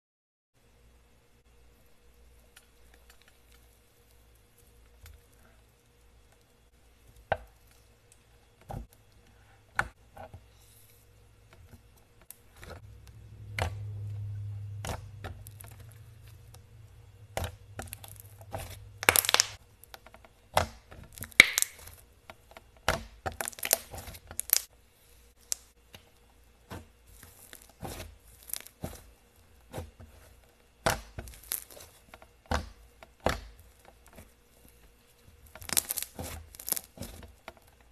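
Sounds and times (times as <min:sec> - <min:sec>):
low hum: 0:12.6 - 0:19.6
slime crackling and popping: 0:14.8 - 0:16.7, 0:17.3 - 0:19.9, 0:20.6 - 0:22.0, 0:22.9 - 0:24.7, 0:27.4 - 0:28.8, 0:30.9 - 0:32.0, 0:35.5 - 0:37.2.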